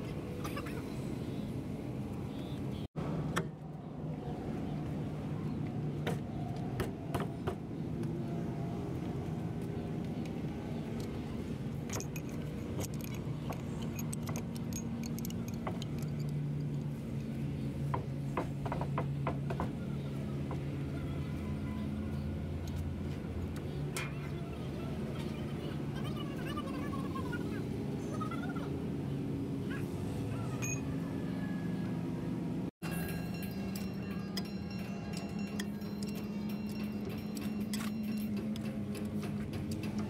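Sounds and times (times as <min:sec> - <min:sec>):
tools clinking on metal: 0:11.8 - 0:16.9, 0:32.8 - 0:40.0.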